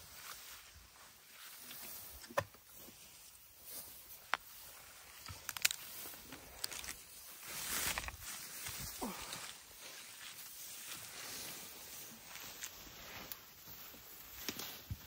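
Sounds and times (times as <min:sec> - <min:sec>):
dry grass rustling: 0:00.0 - 0:15.0
stems snapping: 0:05.1 - 0:07.0, 0:14.3 - 0:15.0.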